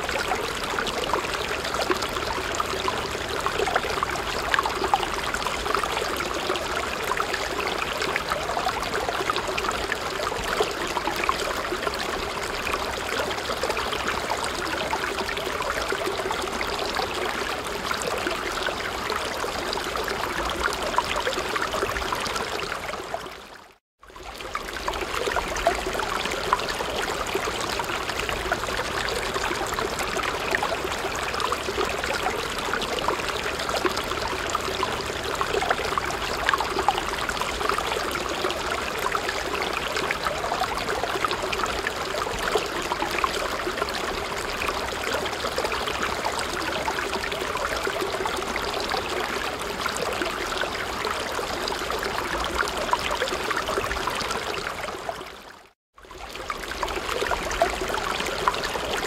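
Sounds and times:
water trickling and bubbling: 0.0 - 59.0.

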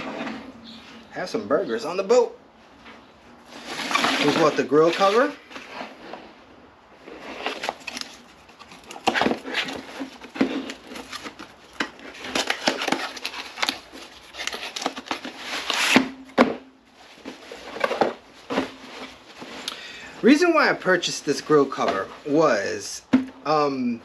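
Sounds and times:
cardboard and cloth rustling: 2.8 - 23.3.

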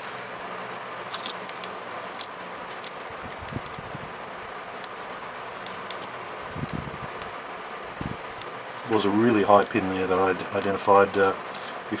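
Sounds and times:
fan hum: 0.0 - 12.0
lock pick clicking and scraping: 1.1 - 3.8.

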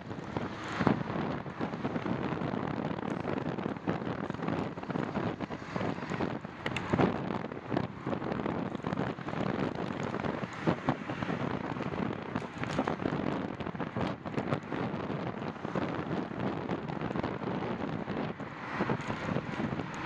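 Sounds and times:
wind rushing over microphone: 0.0 - 20.0
bicycle knocks and rattles: 8.6 - 15.3.

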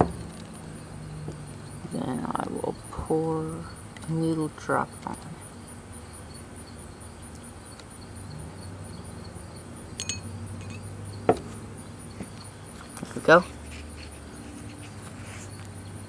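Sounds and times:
insects chirping: 0.0 - 16.0
faint glassy clink: 10.0 - 10.9.

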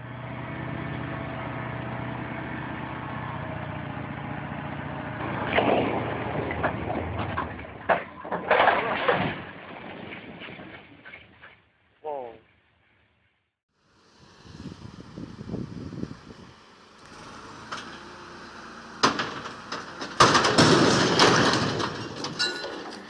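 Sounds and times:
truck engine running: 0.0 - 7.8, 13.8 - 23.0
blocks crashing to the ground: 6.6 - 10.8, 19.0 - 23.0.

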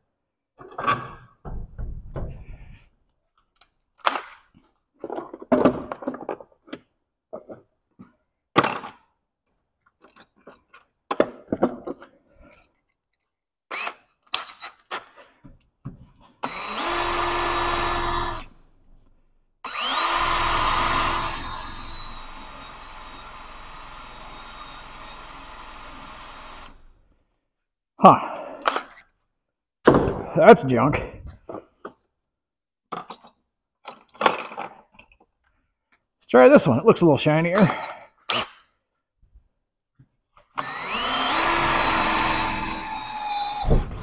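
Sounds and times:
electric drill whining: 16.4 - 18.6, 19.7 - 27.0, 40.6 - 44.0.

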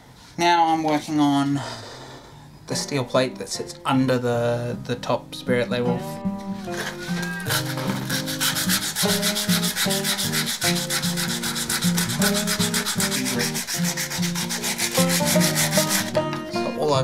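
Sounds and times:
hand sanding steel plate: 6.6 - 16.2.

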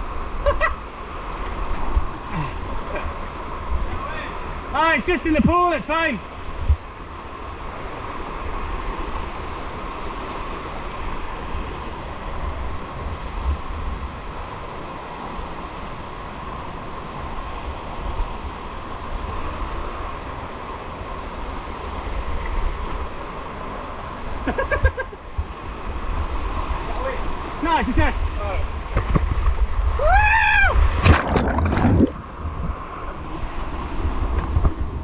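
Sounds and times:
stream water rushing: 0.0 - 35.0
wind buffeting microphone: 25.3 - 35.0.

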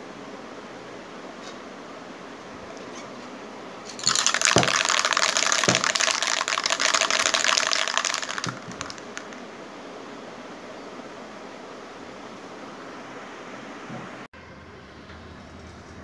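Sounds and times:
spray can ball rattling: 3.9 - 9.5.

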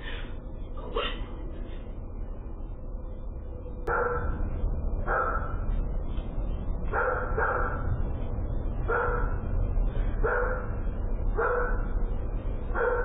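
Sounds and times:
steady low rumble: 0.0 - 13.0
dog barking: 3.9 - 4.4, 5.1 - 5.6, 6.9 - 7.9, 8.9 - 9.4, 10.2 - 10.7, 11.4 - 11.9, 12.7 - 13.0.

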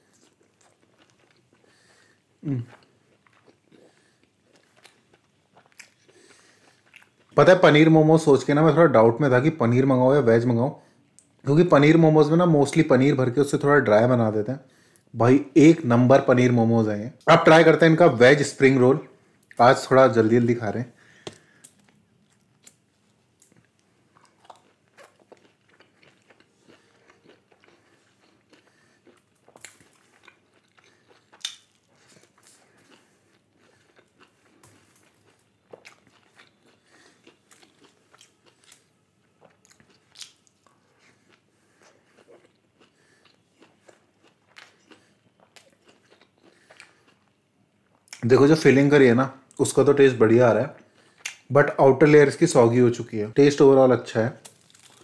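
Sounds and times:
chewing with crunches: 0.0 - 7.4, 21.2 - 48.2, 54.4 - 55.0.

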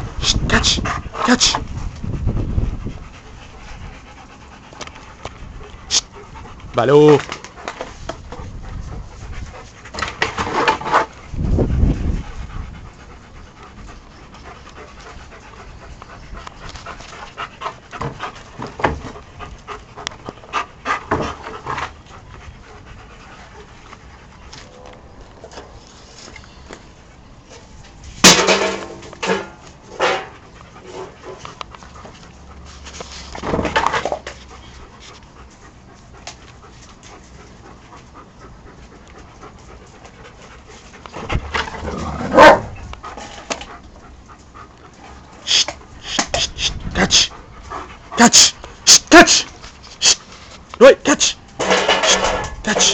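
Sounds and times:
dogs panting: 0.0 - 52.9
knocks and clatters: 51.6 - 52.6.

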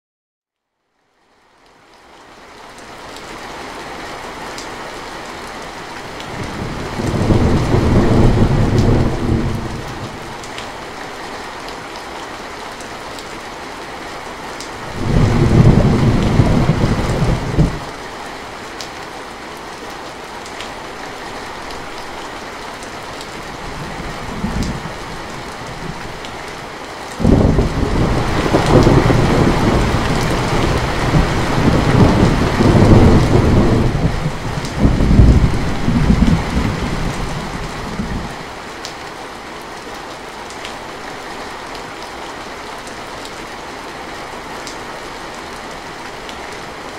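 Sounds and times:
heavy rain on metal roof: 1.1 - 46.9
thunder rumbling: 6.4 - 10.4, 14.9 - 17.8, 27.2 - 38.3.

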